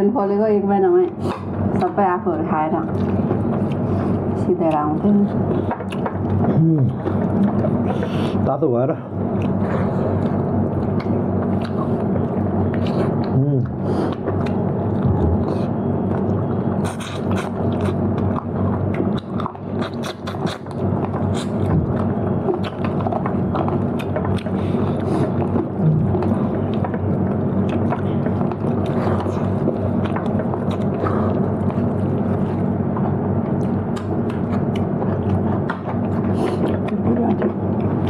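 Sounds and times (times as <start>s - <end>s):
steady low hum: 0.0s - 38.0s
person chewing food: 2.9s - 8.4s, 9.1s - 38.0s.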